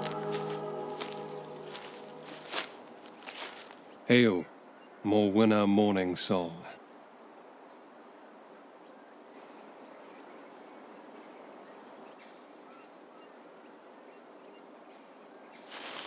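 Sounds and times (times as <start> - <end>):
loud rustling: 0.0 - 3.8
outdoor hiss: 15.7 - 16.0.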